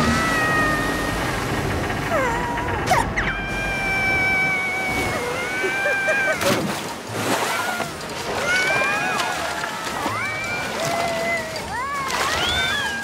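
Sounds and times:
water pouring and splashing: 0:03.5 - 0:13.0.

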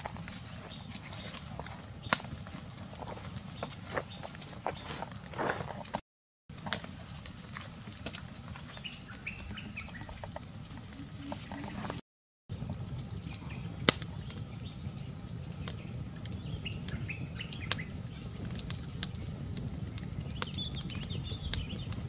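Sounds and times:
campfire crackling and popping: 0:00.0 - 0:22.0
bird chirping: 0:08.7 - 0:11.9, 0:20.3 - 0:22.0.

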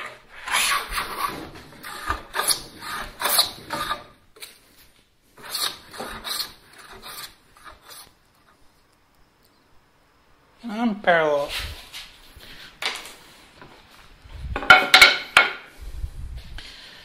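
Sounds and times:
hand plane rasping on wood: 0:00.4 - 0:04.1, 0:05.4 - 0:08.1.

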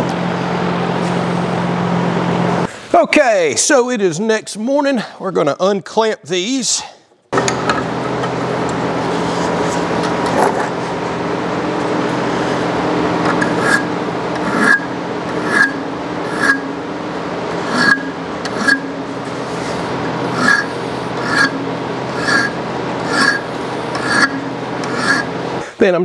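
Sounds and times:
mechanical hum: 0:00.0 - 0:26.0
sharp scraping strokes: 0:13.3 - 0:16.8, 0:17.6 - 0:25.4.

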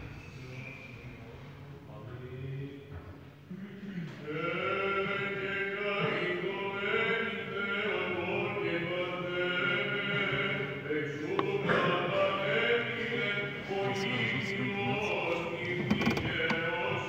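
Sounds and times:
low vocal drone: 0:03.5 - 0:17.0
men chanting slow melody: 0:04.3 - 0:17.0.

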